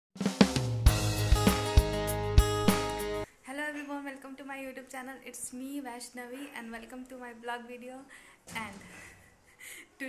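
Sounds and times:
intro music drum beat: 0:00.2 - 0:03.3.

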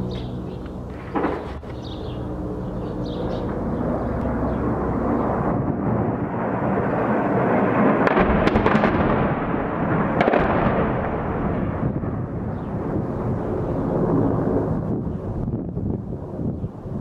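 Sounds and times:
sharp cracks: 0:00.6 - 0:01.8, 0:08.0 - 0:12.0
distant explosion rumble: 0:00.8 - 0:01.8, 0:03.4 - 0:17.0.

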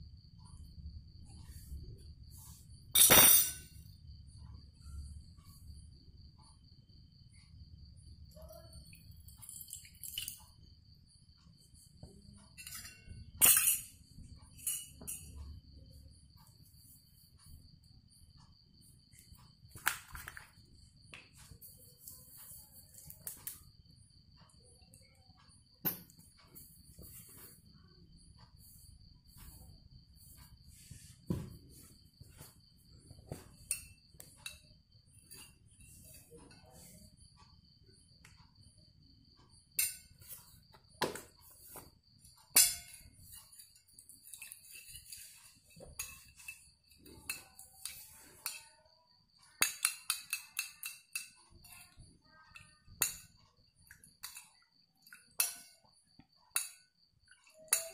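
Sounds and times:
metal spoon clinking on glass: 0:03.0 - 0:03.8, 0:12.6 - 0:15.4, 0:39.8 - 0:40.4, 0:42.5 - 0:48.7, 0:49.6 - 0:53.3, 0:53.9 - 0:55.9, 0:56.5 - 0:56.8, 0:57.4 - 0:57.9.

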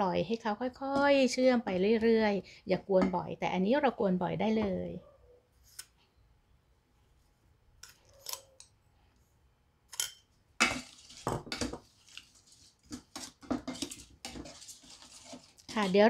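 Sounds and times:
wooden spatula scraping metal pot: 0:10.6 - 0:16.0.

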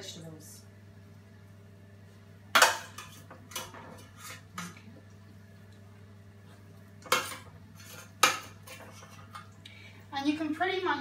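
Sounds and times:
metal spoon clanking on pans: 0:02.5 - 0:04.8, 0:07.0 - 0:09.5.

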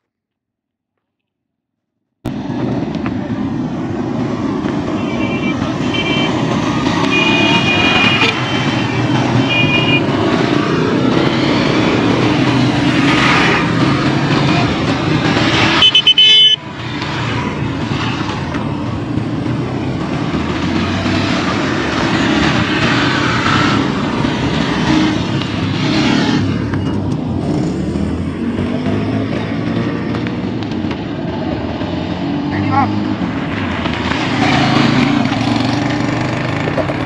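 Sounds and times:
motorcycles riding past: 0:02.3 - 0:37.0
loud horn blast: 0:05.0 - 0:10.2, 0:15.5 - 0:16.6.

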